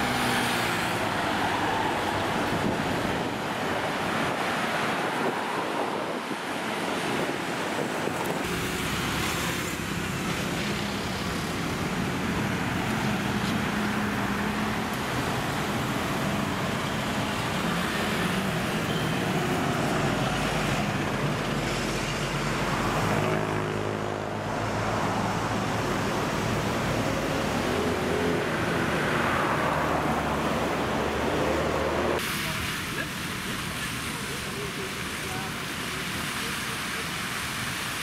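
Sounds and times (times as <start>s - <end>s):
engine passing close: 0.0s - 6.2s, 8.4s - 32.2s
road traffic passing: 0.0s - 38.0s.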